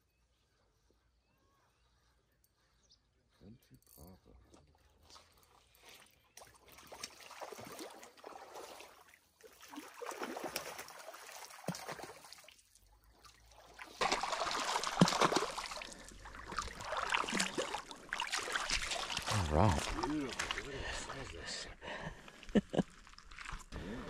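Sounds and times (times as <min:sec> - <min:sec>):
fish splashing in water: 0:06.4 - 0:12.6, 0:13.4 - 0:21.1.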